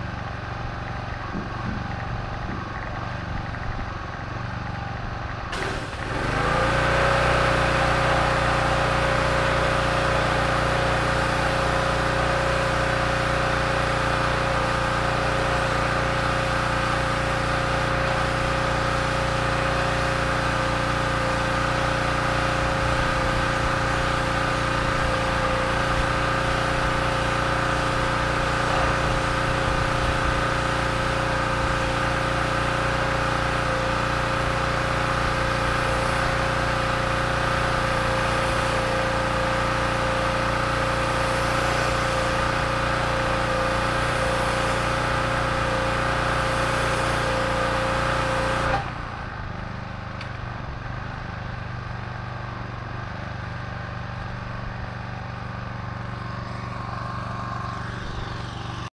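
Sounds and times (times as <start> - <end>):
pressure washer motor hum: 0.0 - 58.9
water spray hissing: 22.2 - 48.6.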